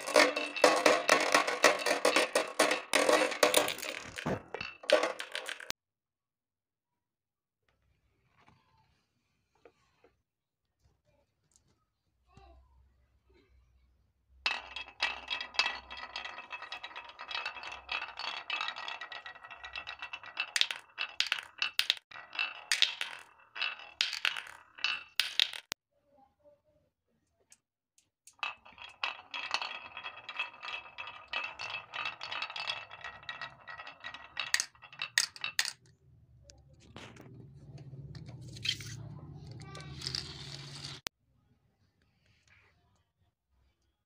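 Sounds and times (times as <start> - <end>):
marbles clicking together: 0.0 - 5.7, 14.5 - 25.8, 28.3 - 35.8, 38.6 - 41.1
marbles rattling down wooden chute: 0.0 - 5.7, 14.5 - 25.8, 28.3 - 35.8, 38.0 - 41.1.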